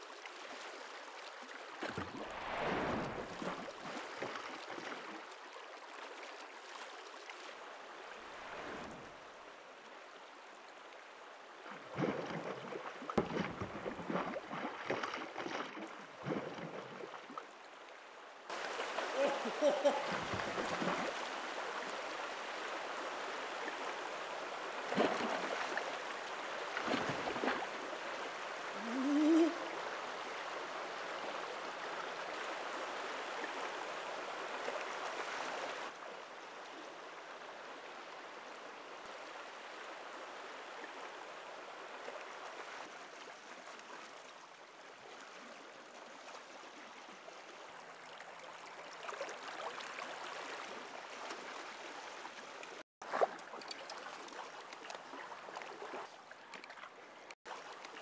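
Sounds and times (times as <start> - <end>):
river water rushing over stones: 18.5 - 36.0.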